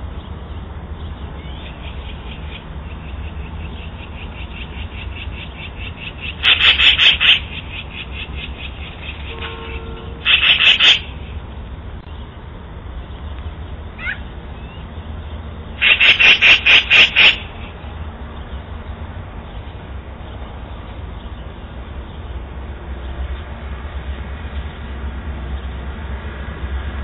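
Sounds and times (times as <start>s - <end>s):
magpie chattering: 1.4s - 9.3s, 10.2s - 11.2s, 14.0s - 14.2s, 15.8s - 17.7s.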